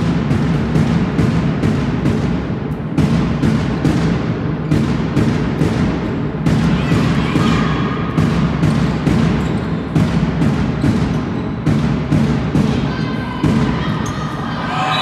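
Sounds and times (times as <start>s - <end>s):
deep thuds: 0.0s - 14.0s.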